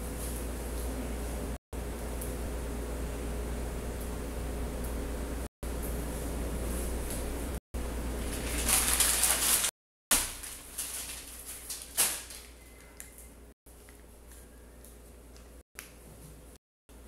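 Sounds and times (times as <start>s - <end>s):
paper banknotes rustling: 8.2s - 12.6s.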